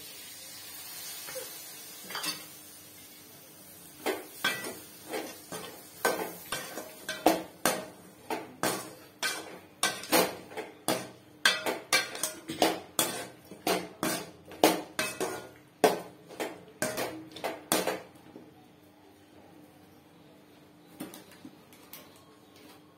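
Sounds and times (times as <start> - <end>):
ladle scraping metal pan: 10.9 - 14.3.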